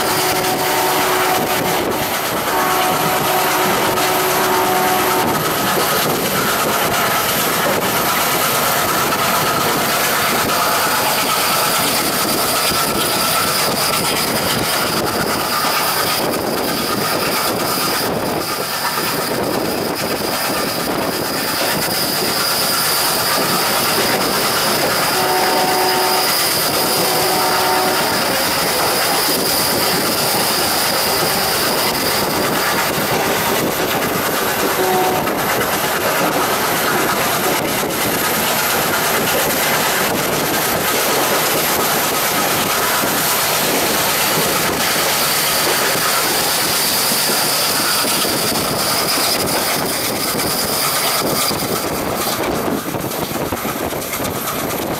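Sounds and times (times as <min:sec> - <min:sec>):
locomotive horn blasts: 0:00.0 - 0:05.6, 0:24.9 - 0:29.7, 0:34.7 - 0:35.6
train wheels clattering on rails: 0:00.0 - 0:54.9.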